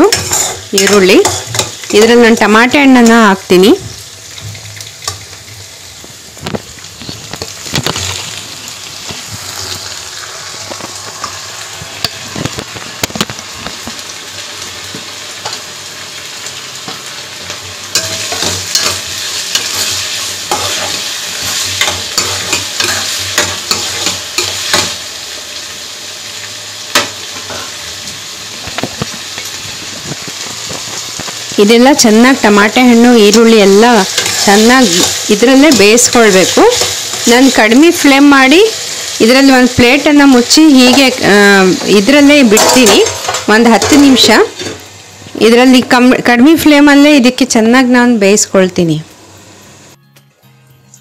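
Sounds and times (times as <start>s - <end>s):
spoon scraping a pan: 0.0s - 2.2s, 17.9s - 25.0s, 33.7s - 37.5s, 41.8s - 44.8s
onions sizzling in hot oil: 0.0s - 50.0s.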